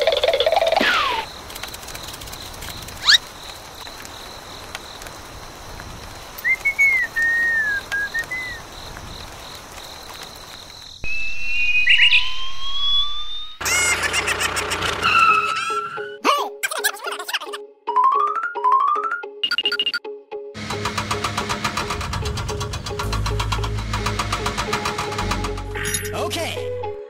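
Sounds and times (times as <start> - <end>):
bird-like whistled chirps: 6.4 - 8.6, 11.0 - 13.6
long rising whistle tones: 11.0 - 13.6
music: 15.0 - 27.0.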